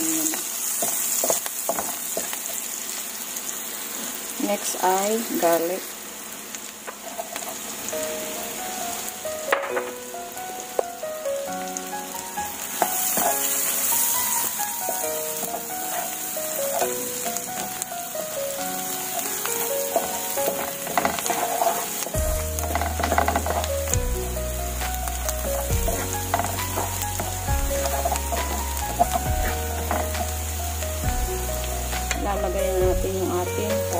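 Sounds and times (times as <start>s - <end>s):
food sizzling in butter: 0.0s - 33.9s
background melody: 7.8s - 33.9s
spatula scraping pan: 12.8s - 17.8s, 18.8s - 24.0s, 24.8s - 31.2s.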